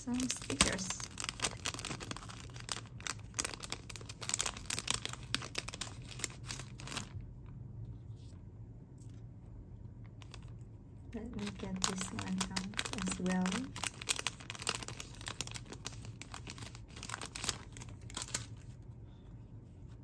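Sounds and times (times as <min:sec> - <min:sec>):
plastic packet crinkling: 0:00.0 - 0:07.2, 0:10.2 - 0:10.6, 0:11.2 - 0:18.8.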